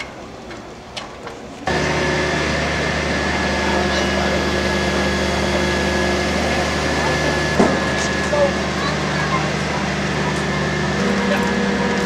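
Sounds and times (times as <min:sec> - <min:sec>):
truck engine and hydraulic drone: 0:01.7 - 0:12.0
faint voices: 0:02.8 - 0:12.0.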